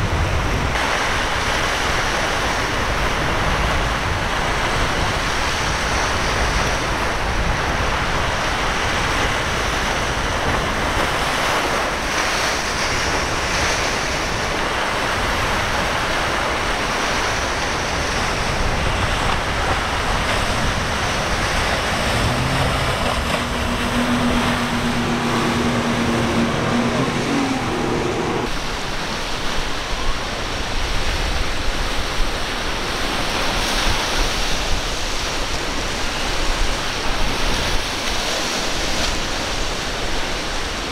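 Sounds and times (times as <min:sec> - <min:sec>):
rough surf breaking: 0:00.0 - 0:40.8
wind buffeting microphone: 0:01.4 - 0:28.8.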